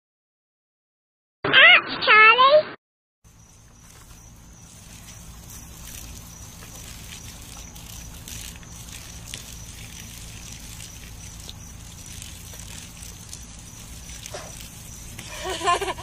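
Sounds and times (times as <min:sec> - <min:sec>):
garden hose spraying water: 0:03.2 - 0:16.0.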